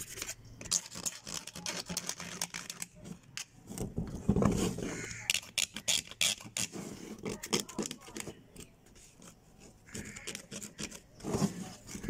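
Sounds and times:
metal blade scraping soil: 4.5s - 12.0s.

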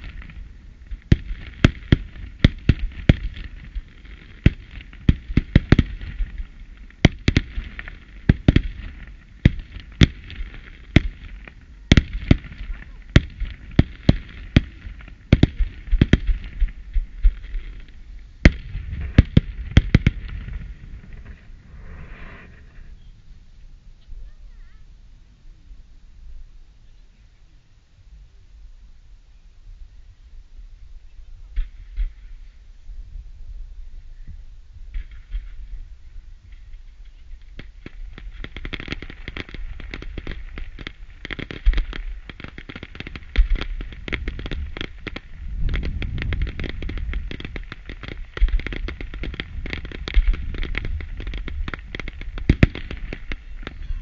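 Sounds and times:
fireworks bangs: 0.0s - 23.3s, 31.5s - 32.6s, 34.9s - 54.0s
fireworks crackle: 0.0s - 24.8s, 30.6s - 54.0s
loud firework bang: 18.4s - 23.0s, 43.2s - 54.0s.

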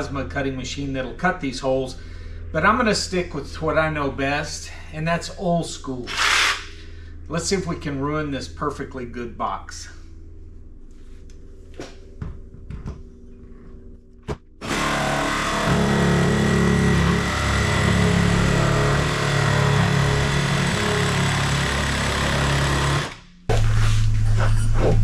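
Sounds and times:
jigsaw cutting plastic: 14.6s - 23.2s.

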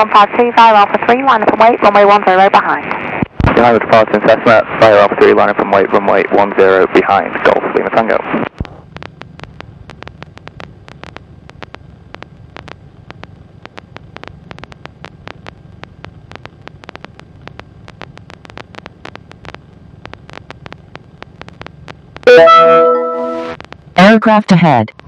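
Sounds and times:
aircraft engine drone over radio: 0.0s - 25.0s
crackle of clicks: 8.4s - 22.3s, 23.6s - 24.0s.

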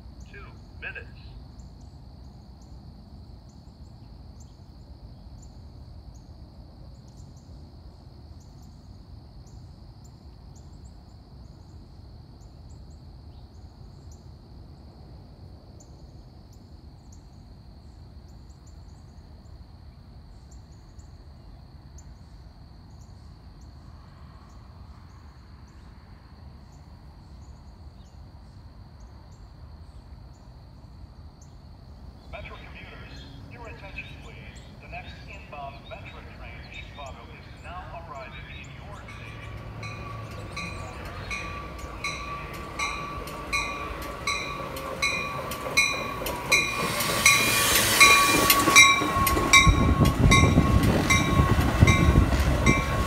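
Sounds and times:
insect chirps: 0.0s - 32.3s, 38.3s - 53.0s
insects droning: 0.0s - 53.0s.

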